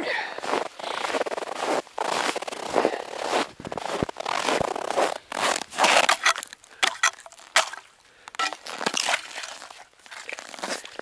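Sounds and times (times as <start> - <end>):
footsteps crunching on snow: 0.0 - 7.8, 8.4 - 11.0
hand scraping through snow: 0.5 - 6.2.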